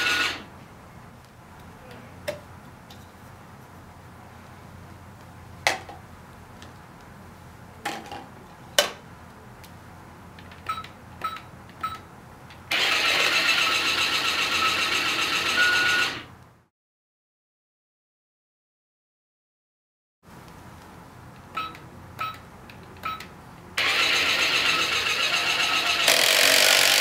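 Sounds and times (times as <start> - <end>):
small motor whirring: 0.0 - 0.4, 12.7 - 16.2, 23.8 - 27.0.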